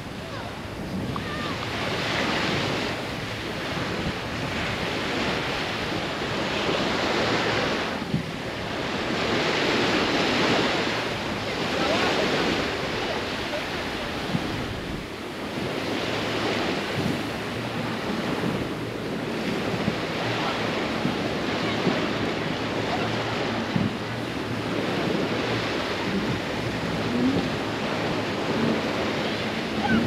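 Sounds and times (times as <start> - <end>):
waves breaking on beach: 0.0 - 30.0
wind: 0.0 - 30.0.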